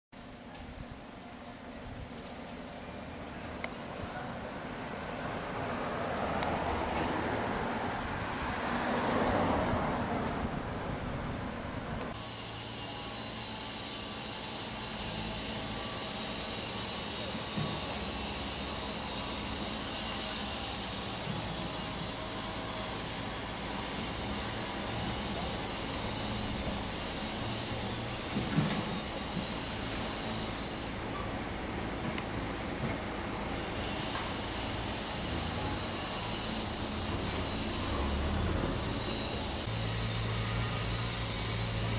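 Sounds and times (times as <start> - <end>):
low engine hum: 4.1 - 12.2
crane hiss: 4.6 - 41.9.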